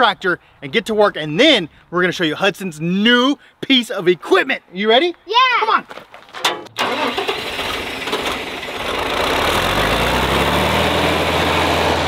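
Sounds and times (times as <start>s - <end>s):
tractor engine running: 6.4s - 12.0s.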